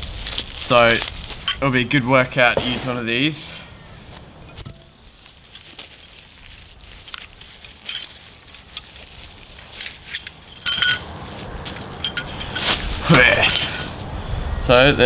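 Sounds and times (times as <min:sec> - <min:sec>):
bubble wrap crinkling: 0:00.0 - 0:02.5, 0:04.9 - 0:14.1
sharp metallic clinks: 0:07.7 - 0:14.1.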